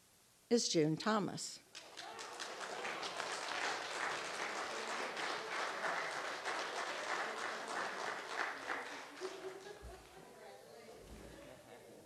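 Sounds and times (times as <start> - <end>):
congregation applauding: 1.7 - 10.2.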